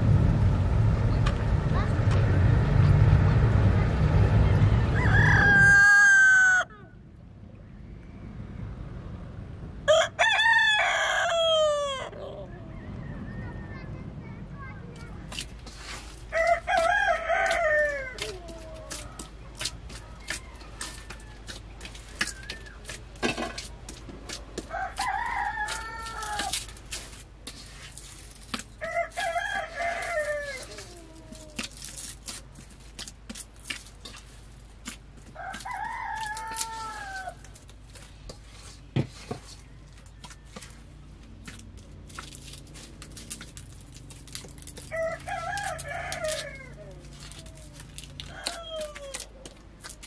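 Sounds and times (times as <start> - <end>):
rooster crowing: 4.8 - 6.8, 9.9 - 13.1, 16.3 - 18.8, 24.7 - 26.5, 28.8 - 31.2, 35.4 - 37.4, 44.9 - 49.3.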